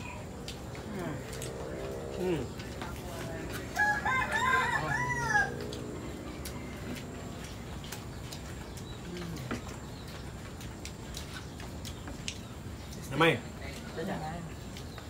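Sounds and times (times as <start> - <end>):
rooster crowing: 3.7 - 7.1.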